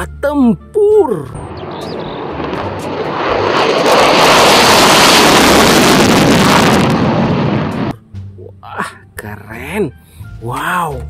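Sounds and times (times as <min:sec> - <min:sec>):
fighter jet engine roar: 0:01.3 - 0:07.9.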